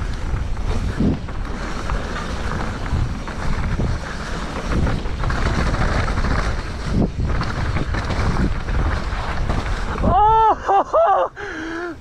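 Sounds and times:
wind buffeting microphone: 0.0 - 10.7
bike jolt: 0.0 - 11.2
bike tyres rumbling on rough ground: 0.0 - 12.0.

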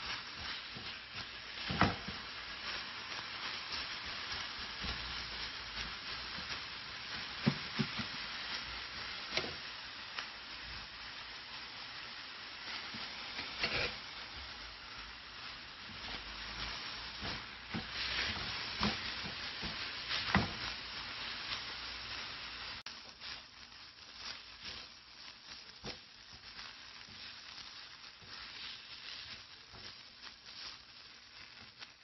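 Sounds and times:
spatula scraping frying pan: 0.0 - 9.7, 12.6 - 22.1, 24.2 - 31.8
meat sizzling: 0.0 - 32.0.

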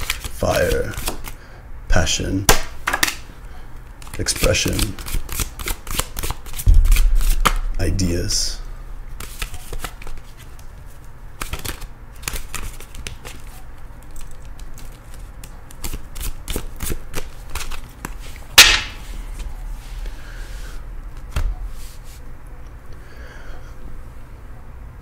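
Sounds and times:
cards being shuffled: 0.0 - 1.4, 4.0 - 7.6, 9.2 - 20.2.

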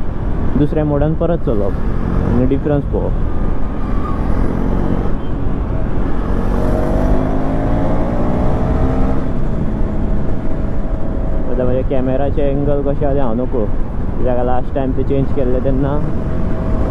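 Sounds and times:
wind and road noise: 0.0 - 16.9
motorcycle engine accelerating: 3.3 - 11.8, 15.6 - 16.9.

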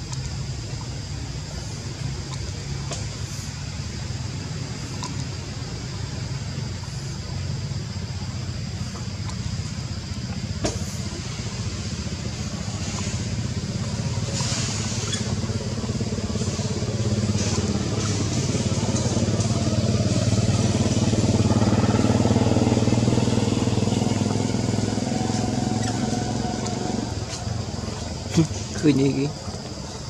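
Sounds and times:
small engine running: 8.8 - 29.3.

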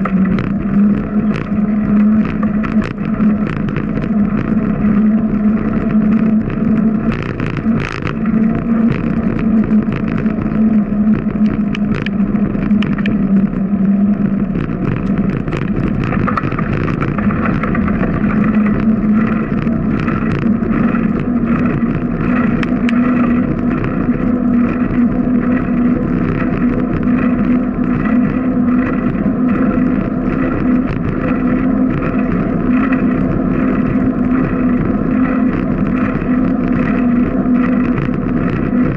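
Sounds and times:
bicycle tyre hum on concrete: 0.0 - 38.9
small clicks and rattles: 0.0 - 38.9.

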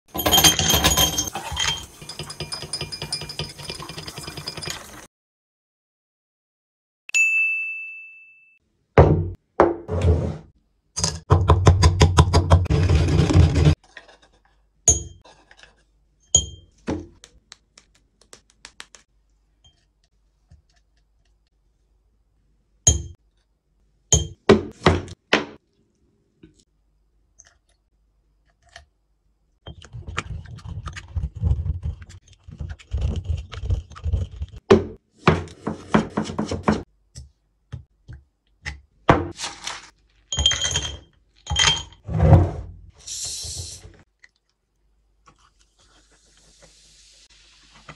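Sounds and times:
glass clinking: 0.1 - 5.0, 14.9 - 15.2, 16.3 - 16.7
ringing ding: 7.1 - 8.6.

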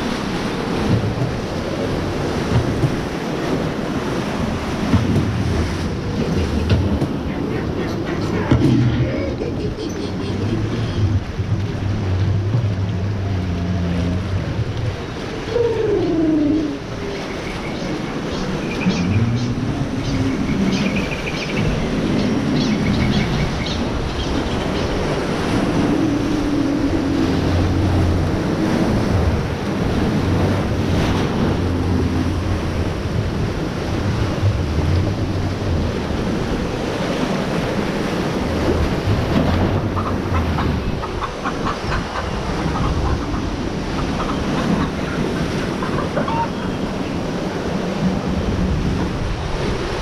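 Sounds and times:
rushing whitewater: 0.0 - 50.0.

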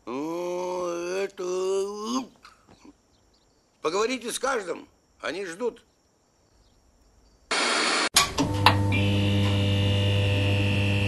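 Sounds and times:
static hiss burst: 7.5 - 8.2
high electrical whine: 7.5 - 11.0.

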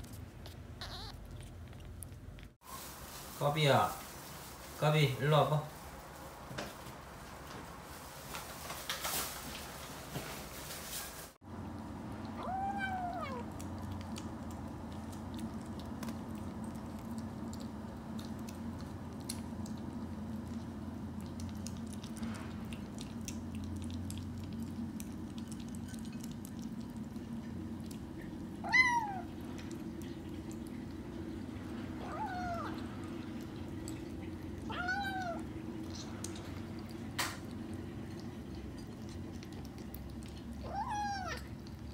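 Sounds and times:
dry food being chewed: 0.0 - 2.6, 11.6 - 28.6, 35.6 - 41.9
kittens mewing: 0.4 - 2.2, 12.3 - 13.6.

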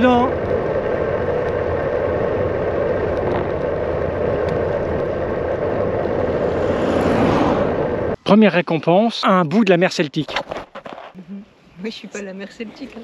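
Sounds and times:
bicycle tyre noise: 0.0 - 8.2
wind on microphone: 0.0 - 8.2.

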